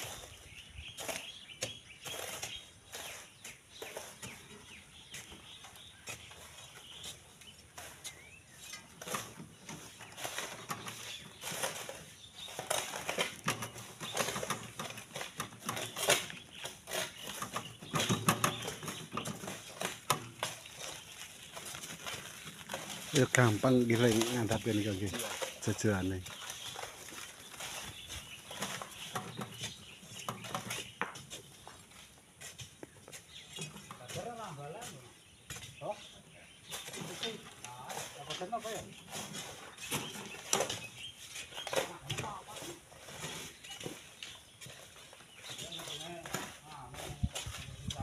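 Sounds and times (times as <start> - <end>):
tools scraping sand and stones: 0.0 - 48.0
iron bars prying sand: 6.1 - 21.0.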